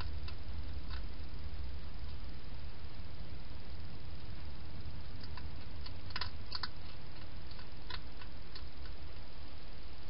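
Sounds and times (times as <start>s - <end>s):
hedgehog crunching food: 0.0s - 2.2s, 4.8s - 9.2s
steady low hum: 0.0s - 10.0s.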